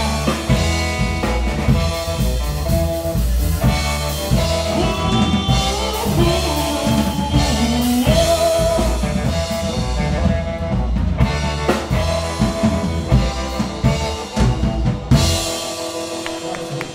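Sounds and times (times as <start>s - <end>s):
drum kit: 0.0s - 16.9s
electric guitar: 0.0s - 16.9s
upright bass: 0.0s - 16.9s
person singing into microphone: 4.3s - 10.1s.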